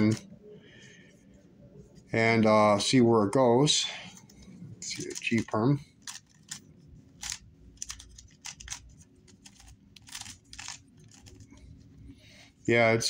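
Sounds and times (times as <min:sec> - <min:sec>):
puzzle cube plastic clicks: 0:04.8 - 0:11.6.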